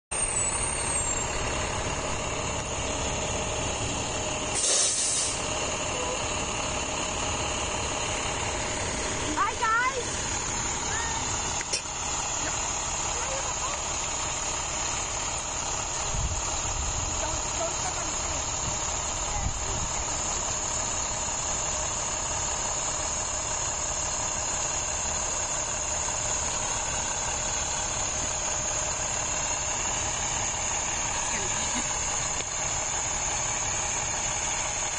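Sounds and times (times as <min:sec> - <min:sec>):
large diesel engine idling: 0:00.1 - 0:34.9
air brake release hiss: 0:04.5 - 0:05.5.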